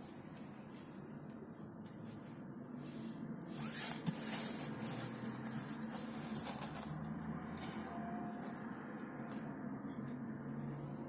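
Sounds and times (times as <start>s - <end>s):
bread loaf crackling rustle: 0.0s - 7.2s.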